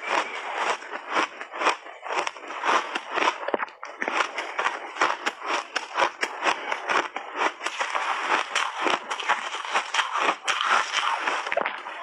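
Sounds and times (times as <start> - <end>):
ice crunching between teeth: 0.0 - 12.0.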